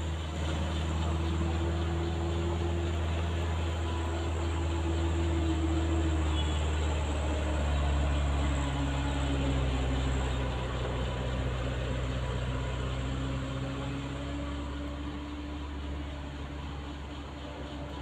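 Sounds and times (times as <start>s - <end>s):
diesel truck engine droning: 0.0s - 18.0s.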